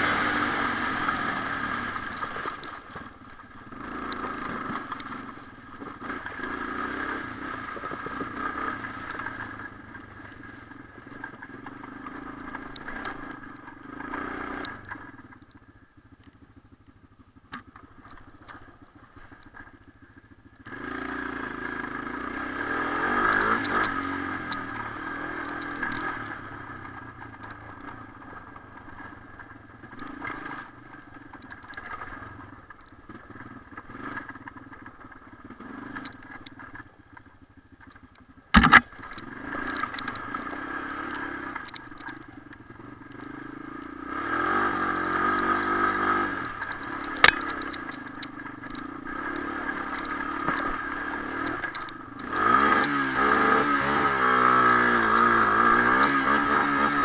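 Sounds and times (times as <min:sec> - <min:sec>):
atv engine revving: 0:00.0 - 0:57.0
short crack: 0:38.5 - 0:39.2.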